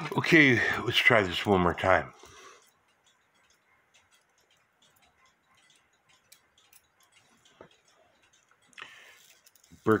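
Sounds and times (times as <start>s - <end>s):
clock movement ticking: 0.0s - 10.0s.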